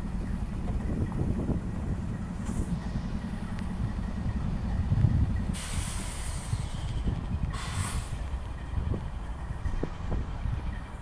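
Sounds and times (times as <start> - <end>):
diesel locomotives rumbling: 0.0 - 11.0
air brake hiss: 5.5 - 8.2.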